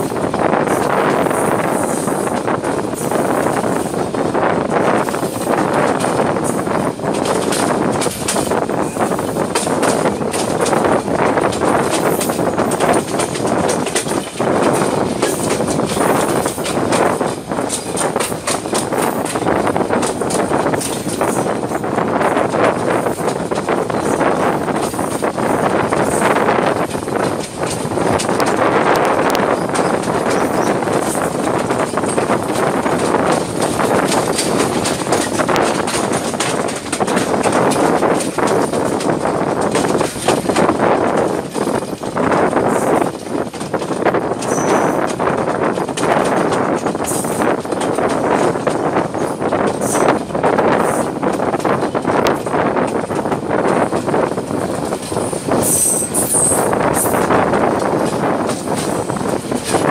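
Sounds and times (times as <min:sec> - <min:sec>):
train wheels clattering: 0:00.0 - 0:59.9.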